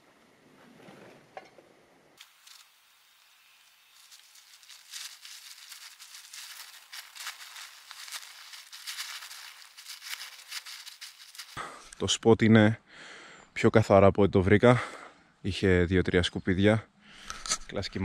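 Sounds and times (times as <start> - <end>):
nylon bags rustling: 2.2 - 11.6.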